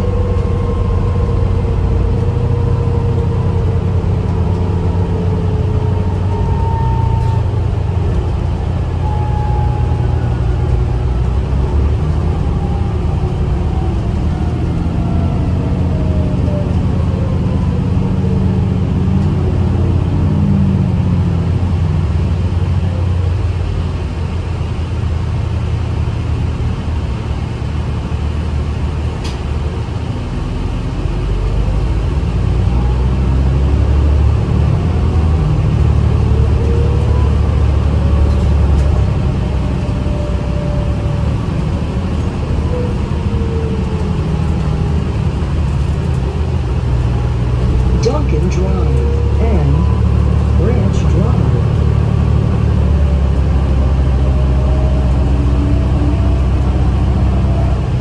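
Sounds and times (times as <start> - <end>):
bus engine droning: 0.0 - 58.0
whine gliding in pitch: 47.7 - 58.0.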